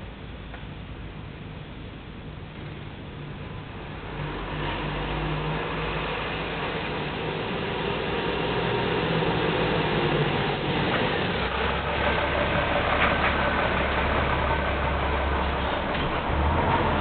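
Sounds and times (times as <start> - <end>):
vehicle engine running: 5.8 - 17.0.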